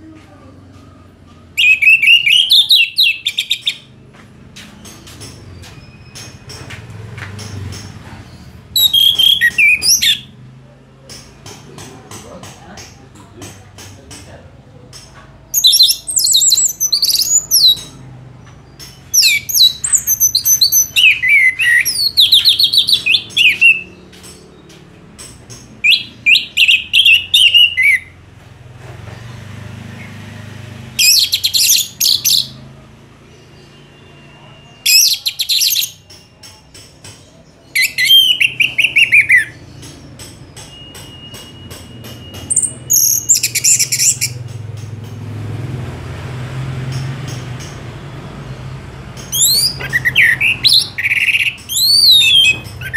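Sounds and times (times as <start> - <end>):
thrush singing: 29.9 - 52.9.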